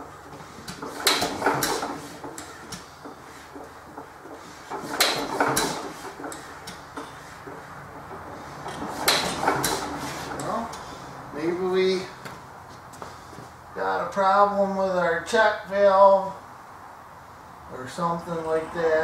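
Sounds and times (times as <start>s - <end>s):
engine metallic knocks: 0.0s - 11.3s.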